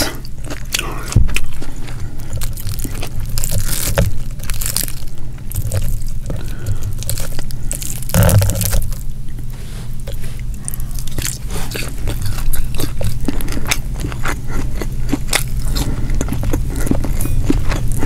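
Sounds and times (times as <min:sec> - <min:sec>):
fried fish skin crackling and tearing: 0:02.2 - 0:09.1.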